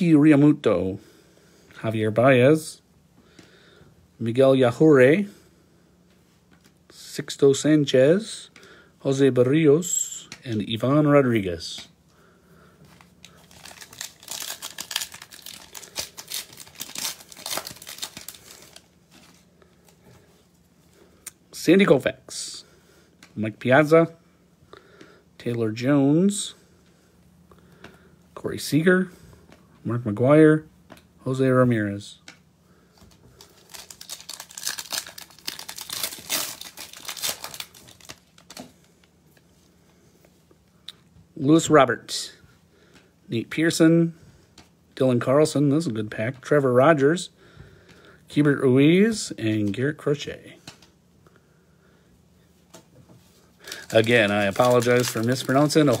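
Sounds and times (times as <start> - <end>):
wrapper tearing and crinkling: 13.2 - 19.4, 33.4 - 38.7, 53.6 - 56.0.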